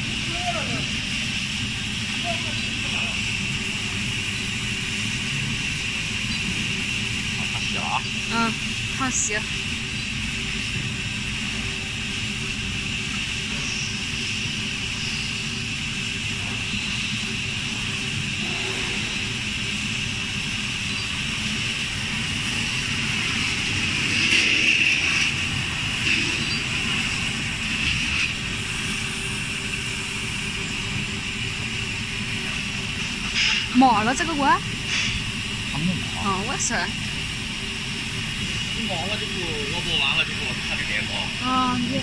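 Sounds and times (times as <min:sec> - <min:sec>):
popcorn machine running: 0:00.0 - 0:42.0.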